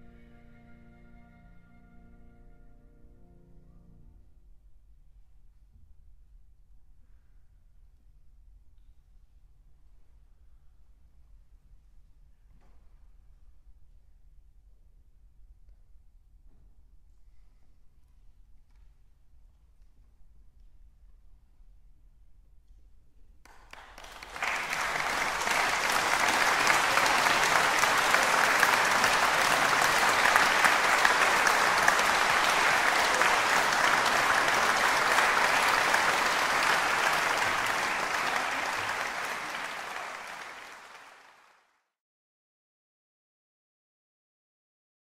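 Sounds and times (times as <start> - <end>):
audience applauding: 23.5 - 41.7.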